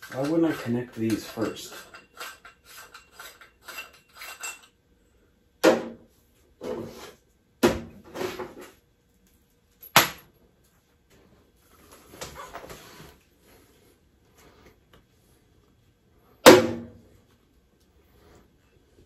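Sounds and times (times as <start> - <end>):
metal parts clanking in steel sink: 0.0 - 4.8.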